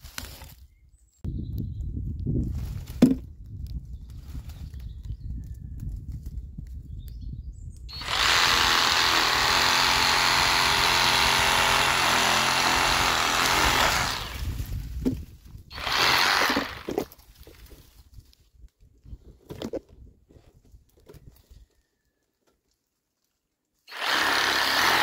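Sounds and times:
reciprocating saw cutting branch: 0:07.9 - 0:14.7, 0:15.8 - 0:17.1, 0:23.9 - 0:25.0.

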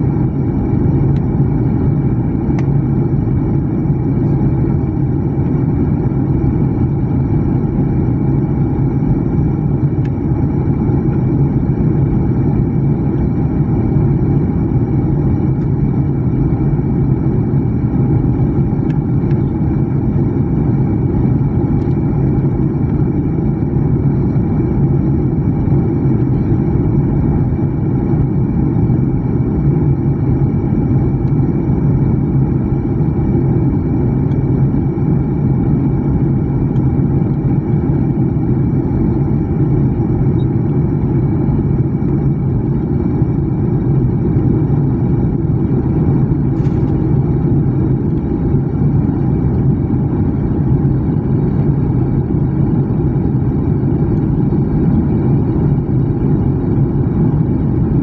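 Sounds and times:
faint steady whine: 0:00.0 - 0:58.0
jet cabin engine rumble: 0:00.0 - 0:58.0.

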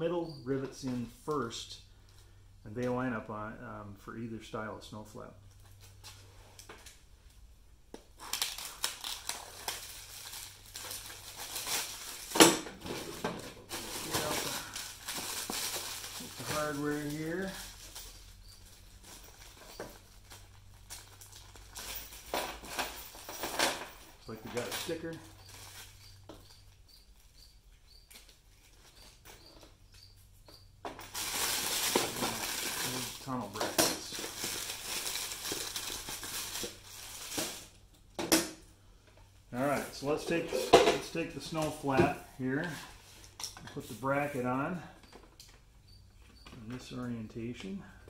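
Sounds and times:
plastic wrap crinkling: 0:08.2 - 0:12.5, 0:13.6 - 0:21.9, 0:31.1 - 0:37.7
plastic bag rustling: 0:08.2 - 0:23.6, 0:31.0 - 0:37.8.

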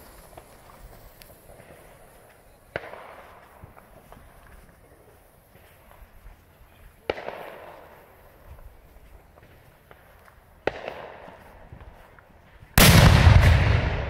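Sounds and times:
firecracker bangs: 0:12.8 - 0:14.0.

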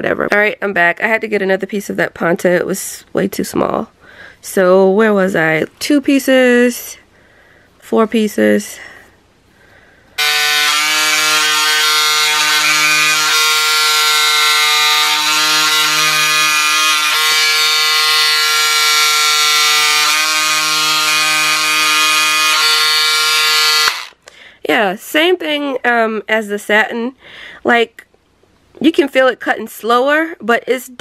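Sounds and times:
electric scissors whining: 0:10.2 - 0:24.2.

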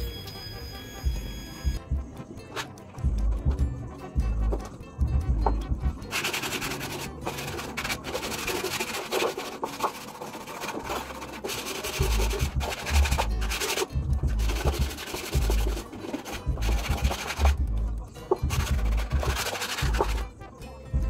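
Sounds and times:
sandpaper rubbing on wood: 0:06.1 - 0:17.6, 0:18.4 - 0:20.2.

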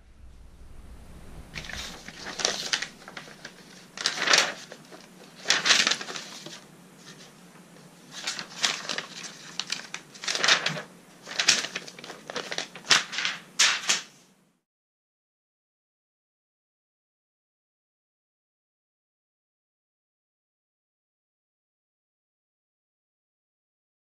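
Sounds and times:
paper rustling and crinkling: 0:01.6 - 0:14.2.

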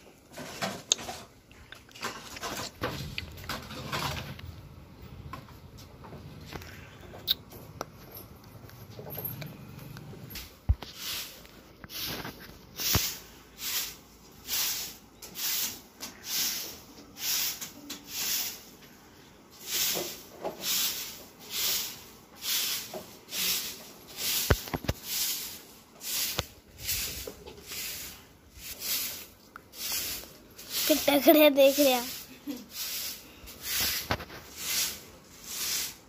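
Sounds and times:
broom sweeping straw: 0:10.8 - 0:18.8, 0:19.5 - 0:36.0.

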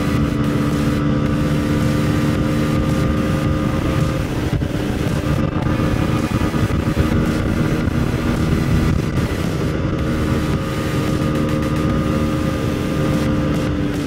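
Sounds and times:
motorcycle engine running: 0:00.0 - 0:14.0
wind noise on microphone: 0:00.0 - 0:14.0.

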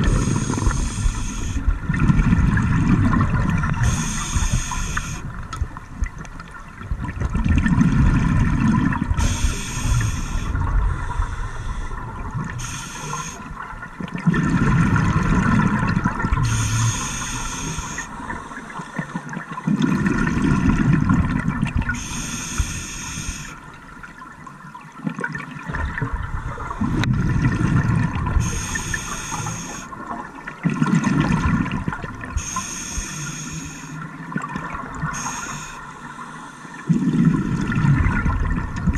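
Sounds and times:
hissing regulator inhale: 0:00.0 - 0:01.7, 0:03.8 - 0:05.3, 0:09.2 - 0:13.5, 0:16.4 - 0:19.2, 0:22.0 - 0:23.6, 0:28.4 - 0:30.0, 0:32.4 - 0:34.1, 0:35.1 - 0:37.0
exhaled bubbles rumbling: 0:00.0 - 0:22.0, 0:23.6 - 0:32.5, 0:34.0 - 0:35.7, 0:36.8 - 0:38.9.

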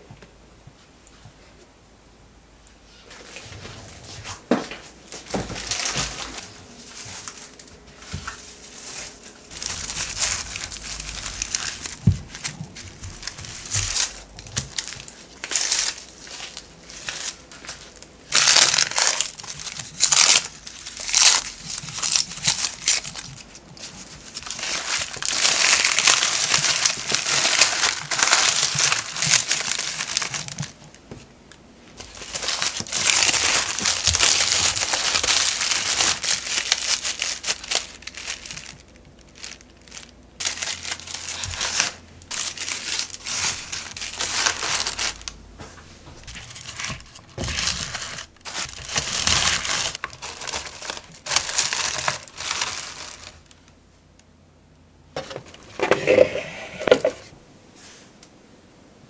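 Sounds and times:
wrapping paper crinkling: 0:05.1 - 0:31.3, 0:31.9 - 0:53.7
onion skins crackling and tearing: 0:05.3 - 0:53.8.

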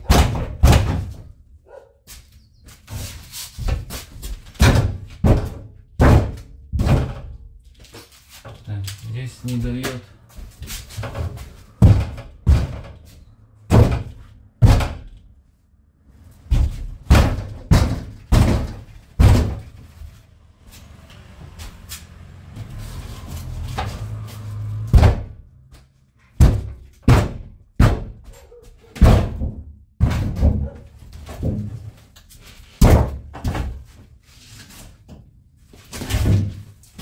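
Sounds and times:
heavy bangs on metal panel: 0:00.0 - 0:01.3, 0:04.5 - 0:07.4, 0:11.0 - 0:13.1, 0:13.7 - 0:15.3, 0:16.5 - 0:19.8, 0:24.7 - 0:25.4, 0:26.4 - 0:28.3, 0:29.0 - 0:30.8, 0:32.8 - 0:33.9.

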